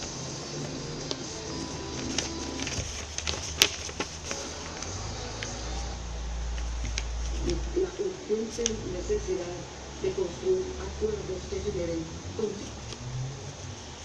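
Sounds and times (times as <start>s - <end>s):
low steady hum: 0.0s - 14.0s
paper crackling and creasing: 0.5s - 5.9s, 6.5s - 8.8s, 12.4s - 14.0s.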